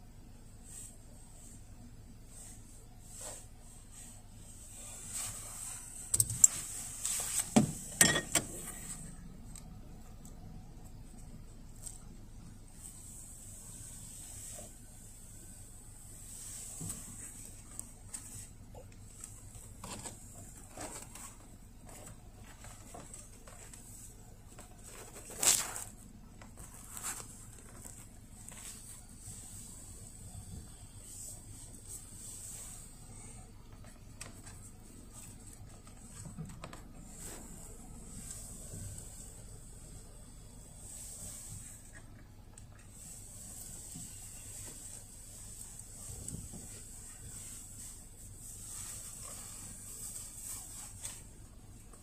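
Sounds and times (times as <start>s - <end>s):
faint high whine: 0.0s - 52.0s
jacket sleeve rustling: 24.8s - 29.5s.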